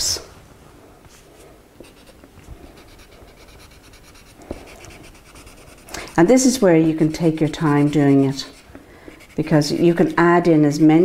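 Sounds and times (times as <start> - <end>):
crayon scratching on paper: 1.8 - 10.2.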